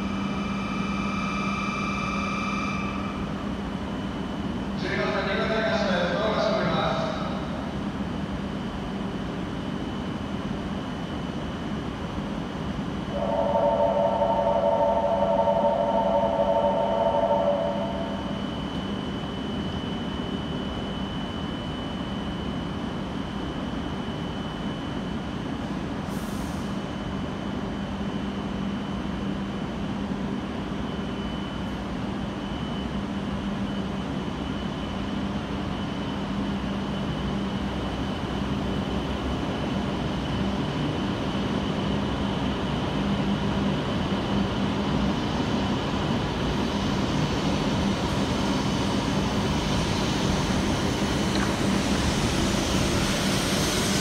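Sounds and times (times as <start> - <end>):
train running hum: 0.0 - 54.0.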